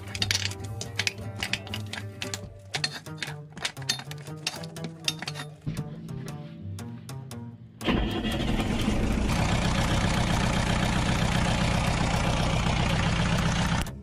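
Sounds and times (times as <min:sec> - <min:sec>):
diesel engine starting and idling: 0:07.8 - 0:14.0.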